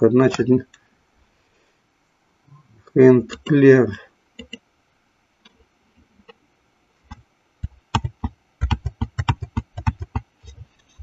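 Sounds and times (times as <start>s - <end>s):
computer mouse clicks: 4.4s - 4.6s.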